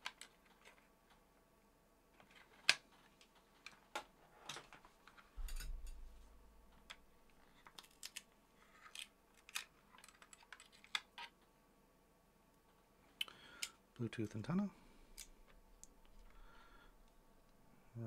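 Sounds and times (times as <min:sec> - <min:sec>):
small items clicking on a desk: 0:06.7 - 0:11.4.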